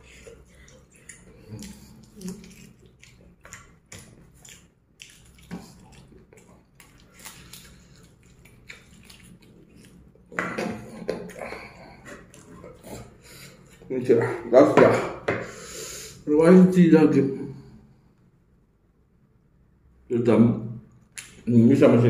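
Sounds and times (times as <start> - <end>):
food crunching: 0.0 - 13.9
person chewing with mouth smacks: 0.0 - 13.9.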